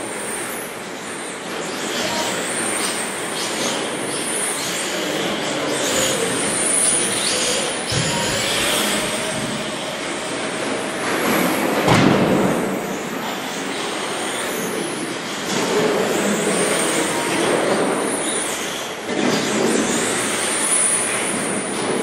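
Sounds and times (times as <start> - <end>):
steady rush of noise: 0.0 - 22.0
radio-controlled trucks whining: 1.6 - 11.8.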